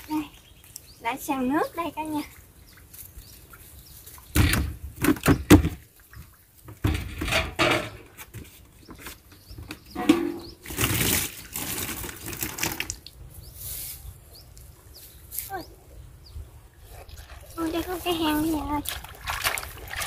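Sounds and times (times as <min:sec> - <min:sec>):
water pouring and splashing: 0:10.0 - 0:13.2, 0:16.8 - 0:20.0
water scooped from clay jar: 0:16.8 - 0:20.0.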